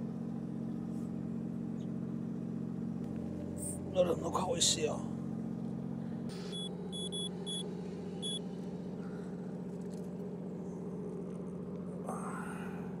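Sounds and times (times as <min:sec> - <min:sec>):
boat engine droning: 0:00.0 - 0:13.0
short high electronic beeps: 0:06.5 - 0:07.6.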